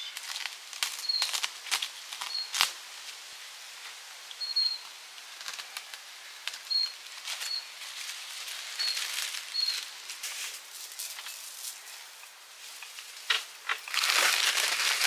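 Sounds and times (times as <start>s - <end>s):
rustles and sharp clicks: 5.2s - 15.0s
high-pitched chirps: 8.8s - 9.8s.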